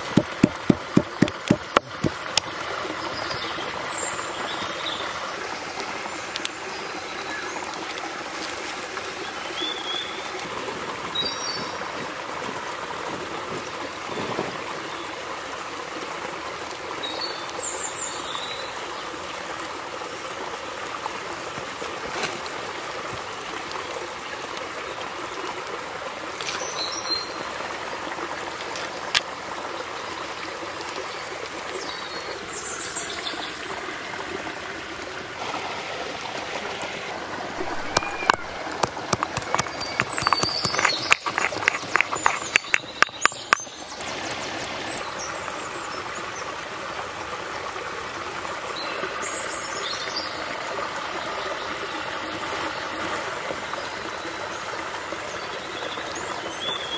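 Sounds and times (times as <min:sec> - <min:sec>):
running stream water: 0:00.0 - 0:56.9
bird chirps: 0:37.6 - 0:38.6.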